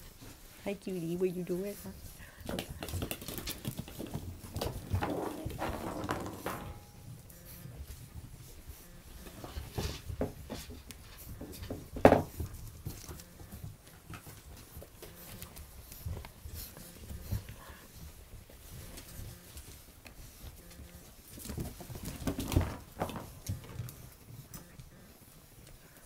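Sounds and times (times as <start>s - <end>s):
paws pattering on floor: 7.4s - 26.0s.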